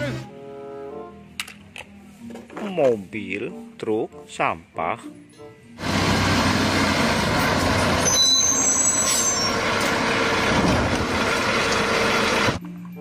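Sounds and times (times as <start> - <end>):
garbage truck running: 5.8 - 12.6
brief high squeal: 8.0 - 9.7.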